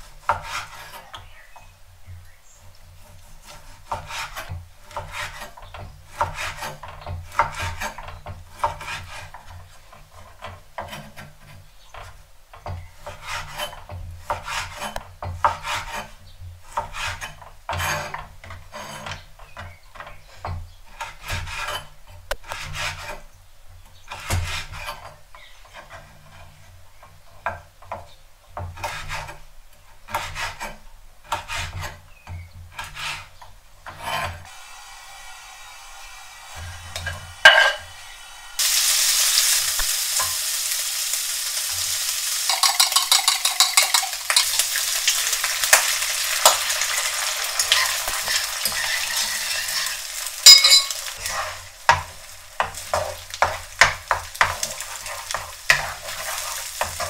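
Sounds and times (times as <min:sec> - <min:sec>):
knife chopping on wooden board: 0:03.4 - 0:09.3.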